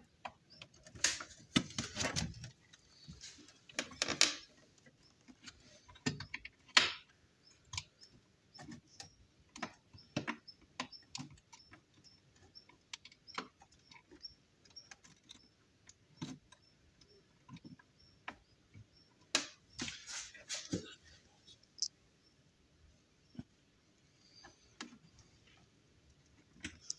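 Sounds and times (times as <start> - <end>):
plastic clicks and knocks: 0.1 - 19.8.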